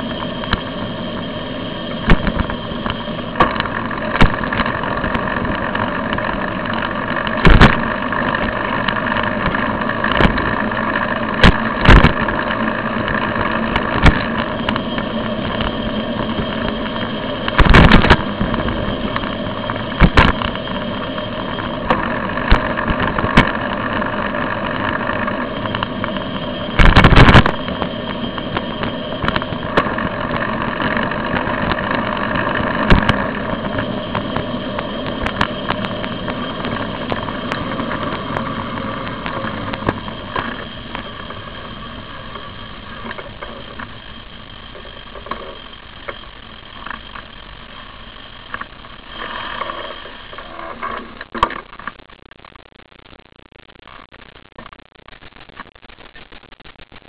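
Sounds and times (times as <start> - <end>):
sharp knocks and clatters: 2.0 - 10.6, 11.3 - 21.2.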